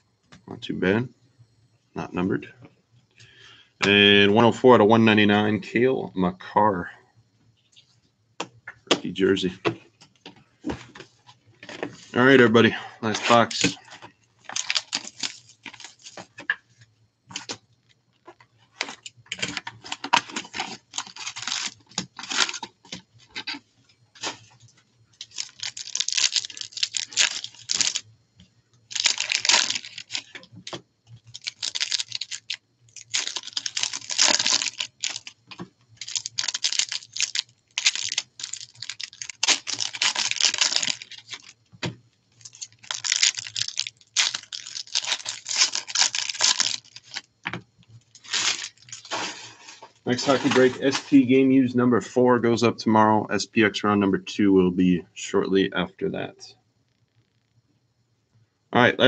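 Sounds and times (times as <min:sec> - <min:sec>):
foil pack crinkling and tearing: 0:13.0 - 0:16.6, 0:18.7 - 0:23.6, 0:24.2 - 0:28.1, 0:28.9 - 0:41.6, 0:42.3 - 0:47.3, 0:48.0 - 0:51.2
shrink wrap being peeled: 0:14.4 - 0:16.3, 0:18.8 - 0:23.6, 0:25.2 - 0:28.0, 0:28.9 - 0:41.6, 0:42.3 - 0:47.3, 0:48.0 - 0:51.1.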